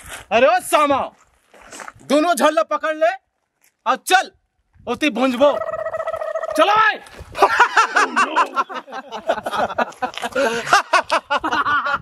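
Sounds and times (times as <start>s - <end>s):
man laughing loudly: 7.4s - 12.0s.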